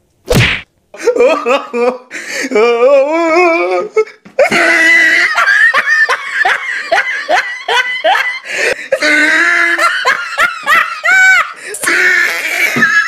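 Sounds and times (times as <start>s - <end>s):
high-pitched laughter: 4.4s - 13.0s.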